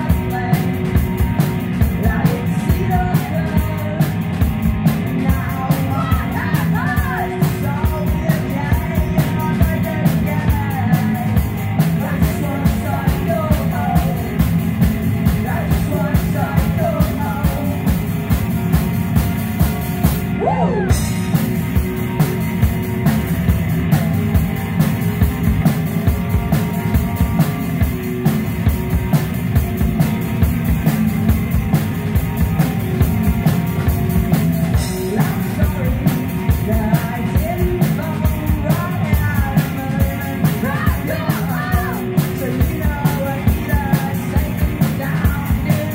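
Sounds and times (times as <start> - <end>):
singer's vocals: 0.0 - 14.5, 15.2 - 18.1, 20.3 - 21.4, 34.7 - 45.9
live rock band playing: 0.0 - 45.9.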